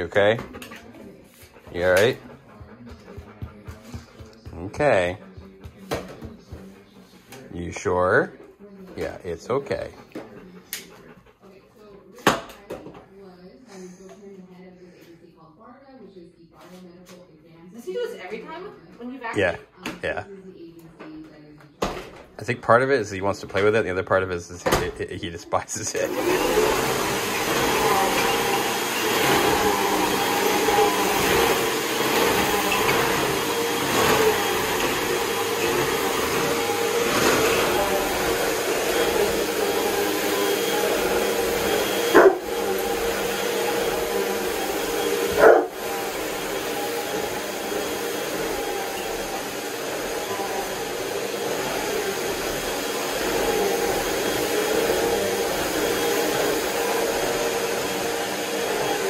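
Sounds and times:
vacuum cleaner running: 0.0 - 11.9, 21.9 - 59.0.

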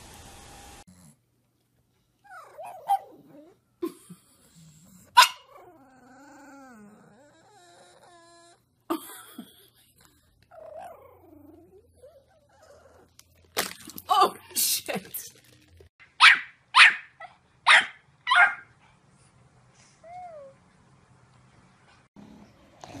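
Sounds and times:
dog whining: 2.2 - 3.6, 5.4 - 8.7, 10.5 - 13.2
dog barking sharply: 5.2 - 5.5, 16.2 - 18.7.

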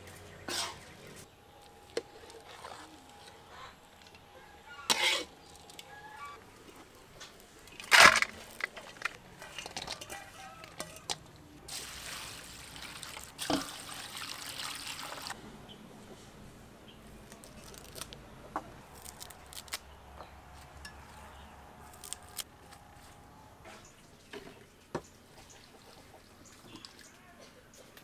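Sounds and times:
water pouring into metal bowl: 11.7 - 15.4.

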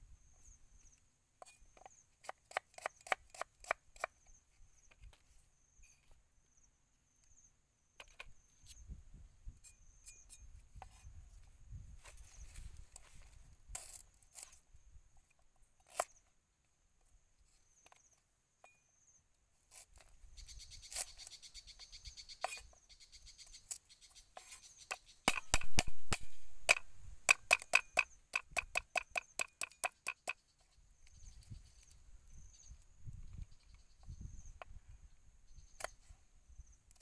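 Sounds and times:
cleaver chopping on wooden board: 25.3 - 30.4.

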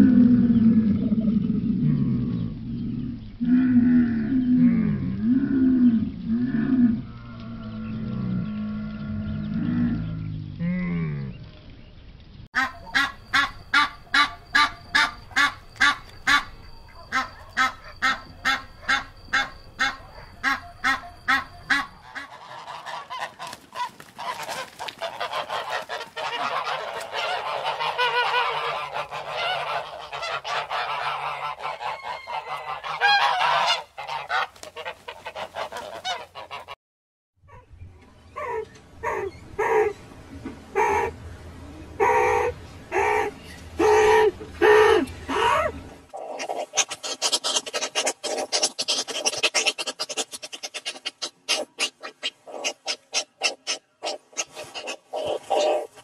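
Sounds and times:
camel groaning grumble: 0.0 - 11.4
geese honking: 12.6 - 36.8.

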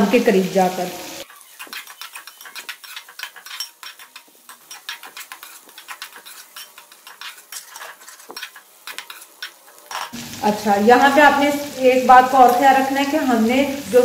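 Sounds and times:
faint sizzle: 0.0 - 14.0
metal spatula scraping a metal pan: 1.2 - 10.2.

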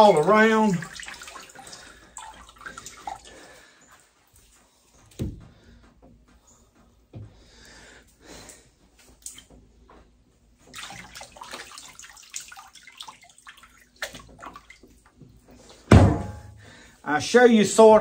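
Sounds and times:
water splashing in a cooler: 0.0 - 3.7, 10.6 - 16.5.

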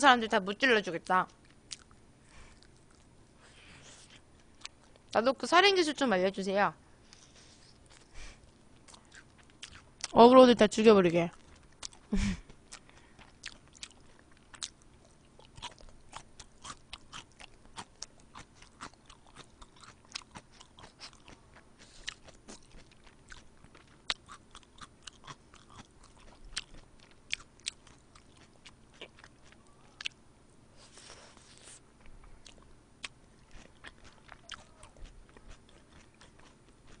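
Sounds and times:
chewing and biting food: 1.3 - 3.1, 7.1 - 10.2, 11.3 - 30.2, 32.0 - 37.0.

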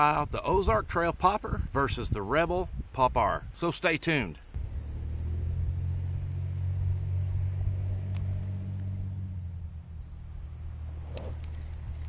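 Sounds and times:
insects chirring: 0.0 - 12.0
low rumble: 4.6 - 12.0.

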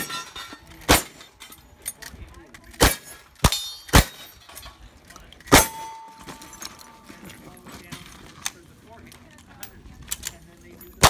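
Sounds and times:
gunshots: 0.8 - 1.3, 2.8 - 4.3, 5.5 - 6.1
steel plate ringing: 5.5 - 7.0.

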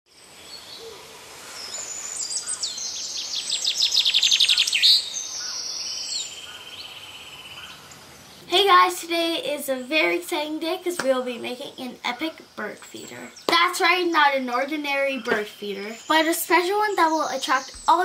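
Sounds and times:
songbirds chirping: 0.1 - 18.0
fast high-pitched bird trill: 13.3 - 18.0.

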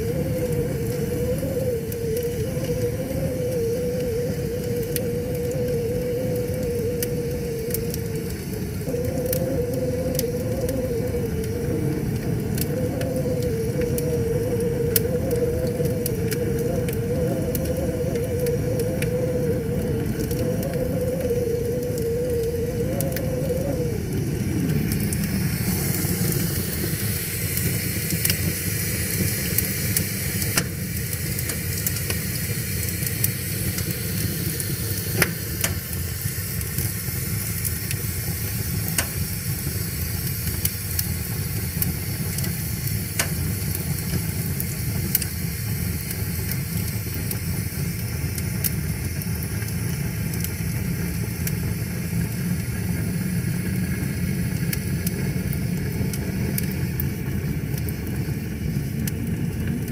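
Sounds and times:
fire crackles and pops: 0.0 - 59.9
low rumble of flames: 0.0 - 59.9.

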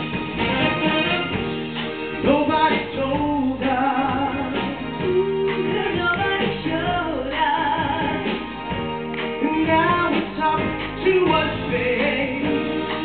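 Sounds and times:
live band playing: 0.0 - 13.0
man singing: 2.2 - 8.4, 9.4 - 13.0
woman singing: 2.2 - 13.0.

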